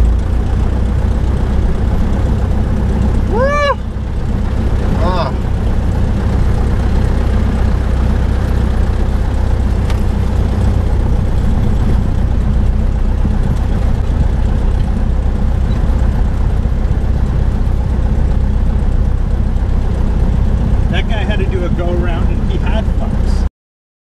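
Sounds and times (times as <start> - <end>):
propeller plane engine running: 0.0 - 23.5.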